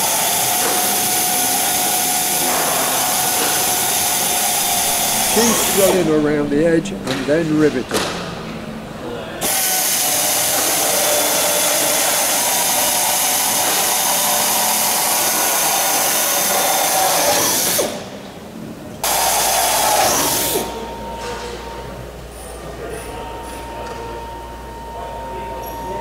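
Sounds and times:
air drill drilling into metal: 0.0 - 6.1, 9.4 - 18.0, 19.0 - 20.8.

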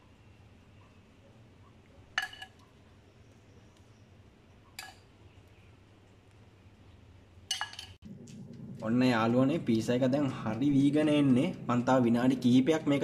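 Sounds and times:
spoon clinking on glass bowl: 2.2 - 2.6.

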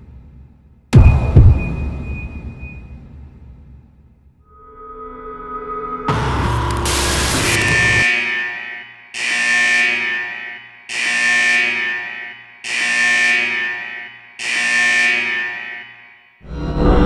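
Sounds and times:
buzzer-like alarm tone: 4.8 - 17.0.

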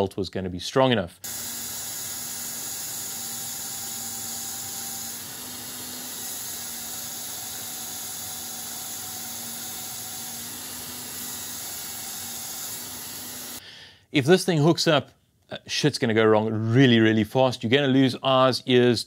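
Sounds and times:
belt grinder grinding steel: 1.2 - 13.6.

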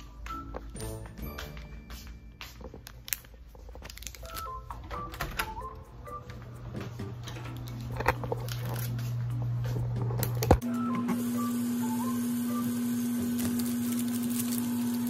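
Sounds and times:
braces brackets clicking and cracking: 2.9 - 5.5.

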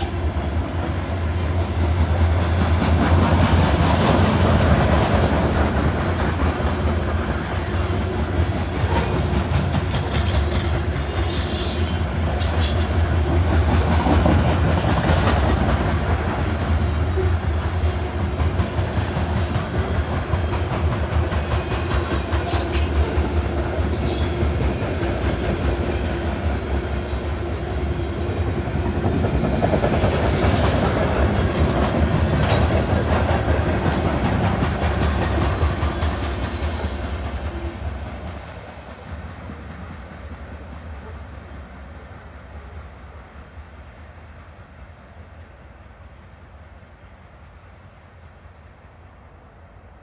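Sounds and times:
freight train rolling past: 0.0 - 50.0
wheels clacking over rail joints: 8.2 - 26.0, 29.0 - 39.2.

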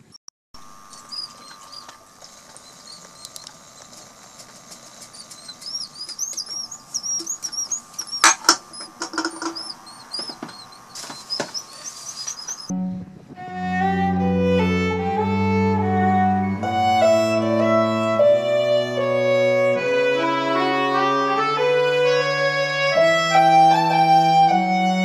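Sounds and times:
seabirds whistling: 0.8 - 12.7.

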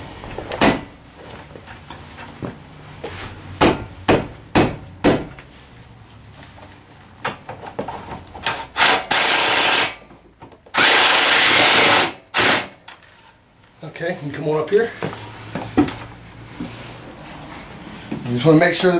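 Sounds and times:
sharp knocks: 0.5 - 0.9, 3.6 - 5.4
power driver running in bursts: 8.8 - 10.0, 10.8 - 12.8.

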